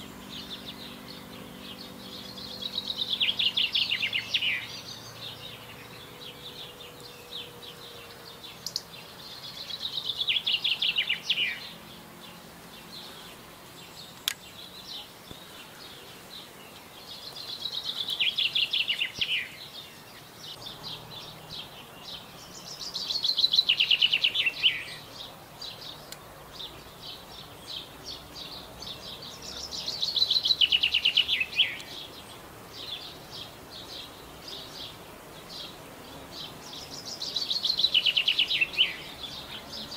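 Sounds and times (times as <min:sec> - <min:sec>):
songbird trilling song: 0:00.0 - 0:39.9
faint high ticks: 0:14.1 - 0:14.4.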